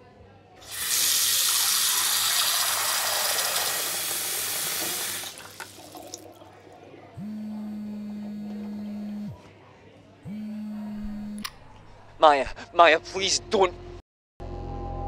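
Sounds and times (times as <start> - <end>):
tap running into washbasin: 0.6 - 6.5
mobile phone vibrating: 7.2 - 9.4, 10.3 - 11.4.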